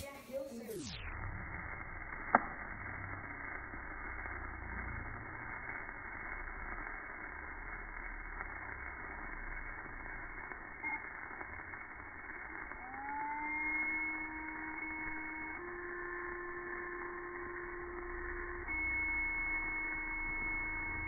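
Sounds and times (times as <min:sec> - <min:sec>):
candle flame hissing: 0:00.0 - 0:21.0
candle igniting pop: 0:01.8 - 0:13.6.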